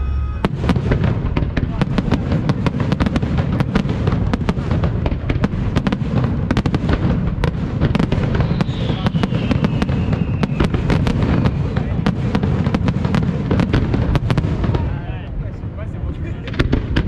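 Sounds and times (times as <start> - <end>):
falling firework whistle: 0.0 - 1.0, 8.0 - 11.9
low rumble: 0.0 - 2.0
fireworks bursts and crackling bangs: 0.0 - 17.0.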